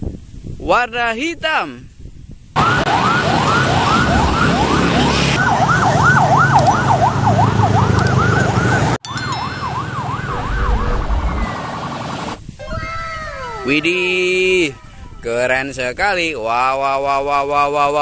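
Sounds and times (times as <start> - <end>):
police siren wailing: 2.6 - 12.4
road traffic rumble: 2.6 - 12.4.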